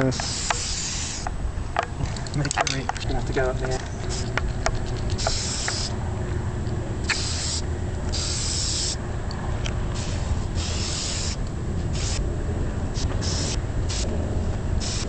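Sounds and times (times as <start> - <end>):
spray paint can hissing: 0.1 - 1.3, 4.0 - 5.9, 7.0 - 9.0, 10.0 - 12.2, 13.0 - 14.1, 14.8 - 15.0
low rumble: 3.0 - 14.9.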